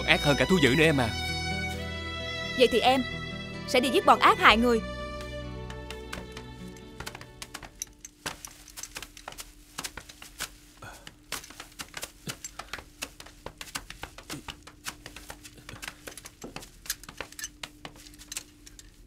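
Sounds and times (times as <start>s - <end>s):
footsteps over rocks and brush: 0.3s - 2.0s, 4.9s - 19.0s
gear knocking: 5.6s - 19.0s.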